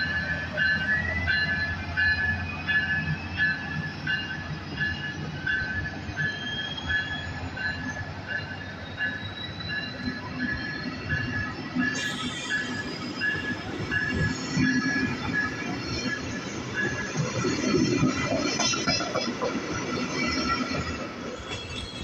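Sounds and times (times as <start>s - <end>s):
wheel squeal: 6.1s - 8.0s.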